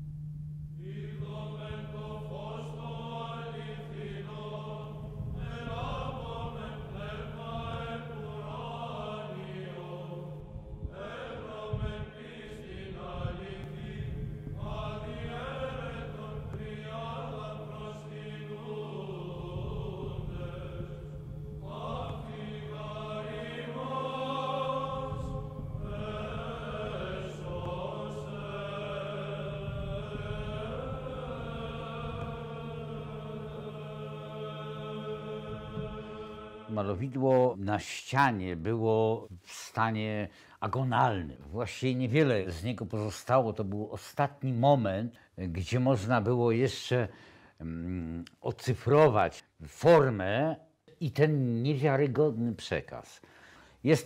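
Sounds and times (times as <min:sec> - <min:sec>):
steady low drone: 0:00.0 - 0:37.2
chanted vocal melody: 0:00.8 - 0:43.4.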